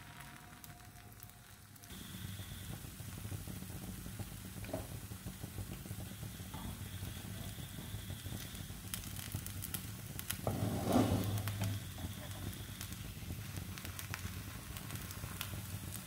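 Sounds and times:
batter sizzling in a pan: 0:00.0 - 0:16.0
spatula scraping pan: 0:10.4 - 0:12.1.

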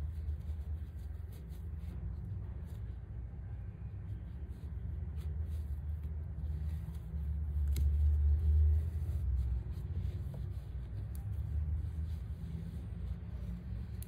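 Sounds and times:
yarn pulled through fabric: 0:00.0 - 0:14.0.

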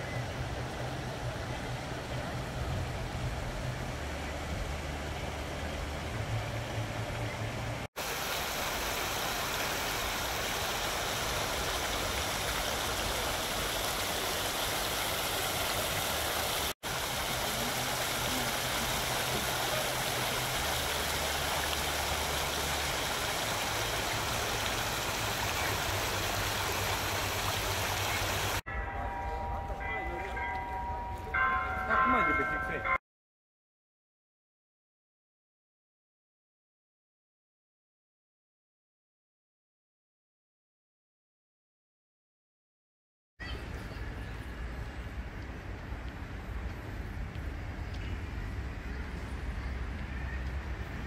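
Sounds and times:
fountain water splashing: 0:00.0 - 0:28.6.

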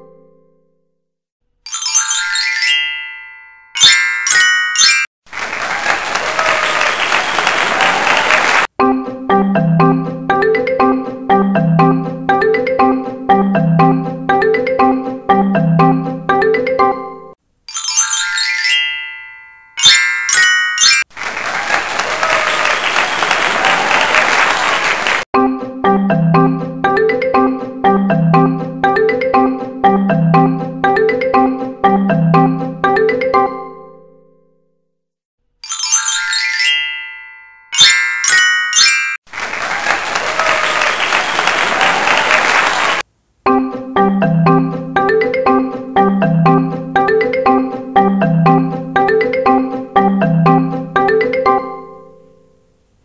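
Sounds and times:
chime glissando and hits: 0:01.7 - 0:05.1, 0:17.7 - 0:21.1, 0:35.6 - 0:39.2
recorded applause: 0:05.3 - 0:08.7, 0:21.1 - 0:25.3, 0:39.3 - 0:43.1
light marimba music: 0:08.8 - 0:19.1, 0:25.4 - 0:34.2, 0:43.5 - 0:52.4.

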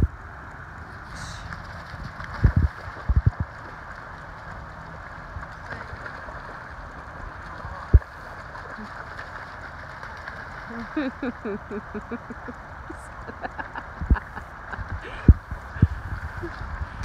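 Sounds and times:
river water rushing: 0:00.2 - 0:17.0
dog splashing through water: 0:01.1 - 0:11.2.

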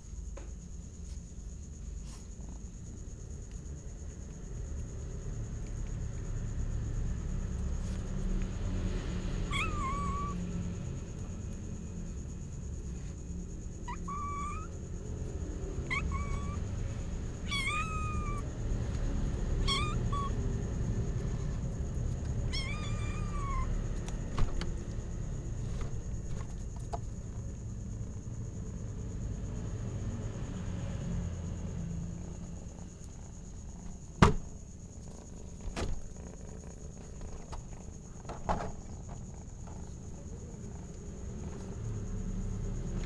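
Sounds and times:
kitten mewing: 0:09.5 - 0:10.4, 0:13.9 - 0:14.8, 0:15.8 - 0:16.6, 0:17.4 - 0:18.4, 0:19.6 - 0:20.4, 0:22.5 - 0:23.8.

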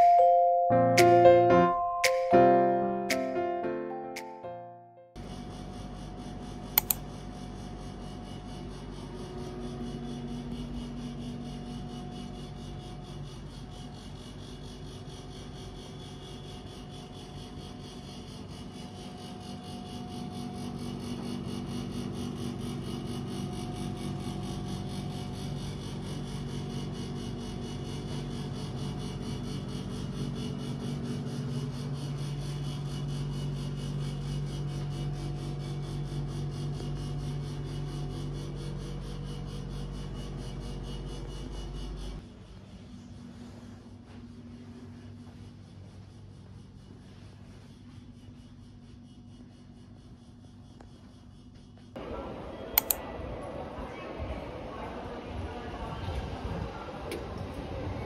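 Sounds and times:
sharp click: 0:06.8 - 0:07.0, 0:52.8 - 0:53.0.

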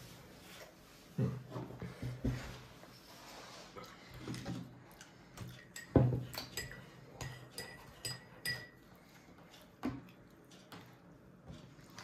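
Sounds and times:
dishes and cutlery clinking: 0:05.4 - 0:11.8.

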